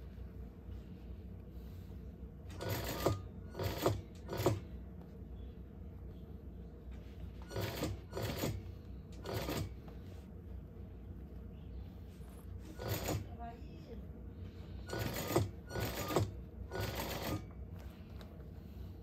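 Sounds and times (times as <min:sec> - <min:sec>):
industrial sewing machine stitching: 0:02.5 - 0:04.6, 0:07.5 - 0:08.6, 0:09.2 - 0:09.8, 0:12.8 - 0:13.3, 0:14.9 - 0:17.5.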